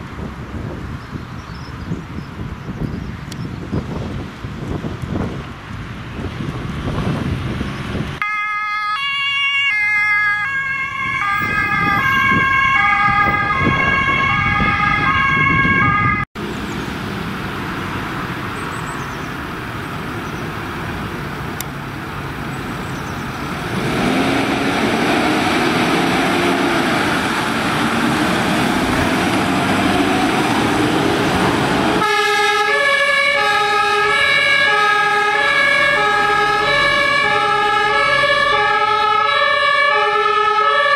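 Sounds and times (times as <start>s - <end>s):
engine and road noise: 0.0s - 40.9s
two-tone emergency siren: 8.2s - 16.3s, 29.9s - 40.9s.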